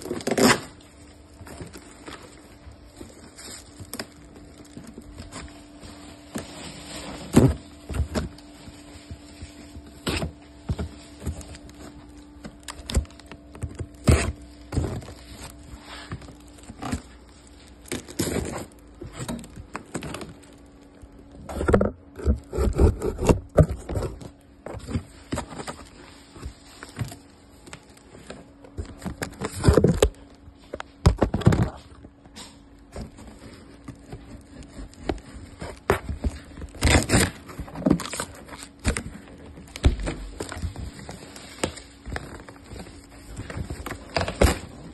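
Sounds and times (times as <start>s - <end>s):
packing tape ripping: 0.0s - 2.4s, 11.4s - 20.6s, 34.1s - 44.9s
cardboard scraping and rustling: 0.0s - 20.7s, 21.4s - 44.9s
faint steady hum: 0.0s - 44.9s.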